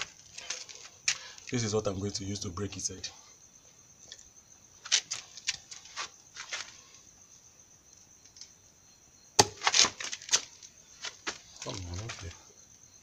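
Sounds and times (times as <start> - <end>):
high-pitched insect chirring: 0.0 - 13.0
pipe smacking ground: 9.4 - 12.2.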